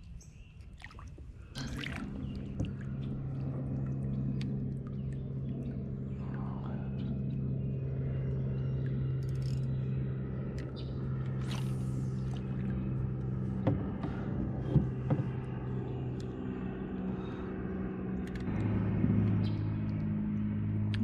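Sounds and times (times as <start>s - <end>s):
low motor hum: 0.0s - 21.0s
sharp knocks: 13.6s - 15.4s.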